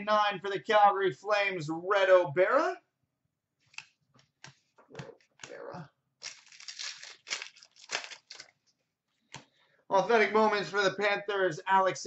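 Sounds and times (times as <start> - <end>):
plastic wrapper crinkling and tearing: 6.2 - 8.6.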